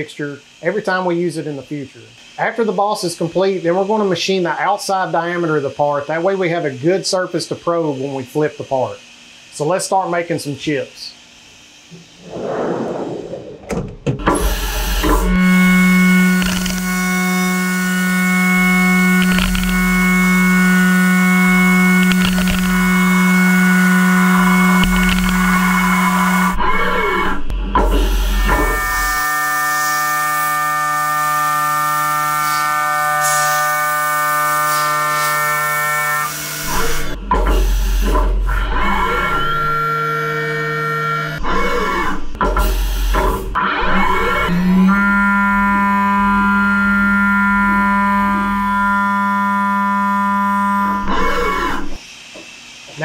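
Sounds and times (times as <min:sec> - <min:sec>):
mill spindle machining tone: 0:13.2 - 0:53.0.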